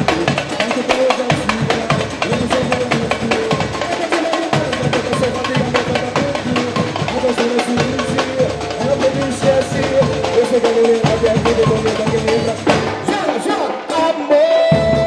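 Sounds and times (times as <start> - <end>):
drums and percussion: 0.0 - 15.0
melodic lead line: 3.2 - 13.3.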